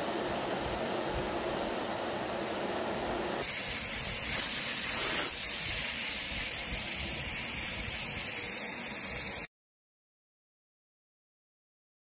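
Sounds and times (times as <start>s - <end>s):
vacuum cleaner running: 0.0s - 9.5s.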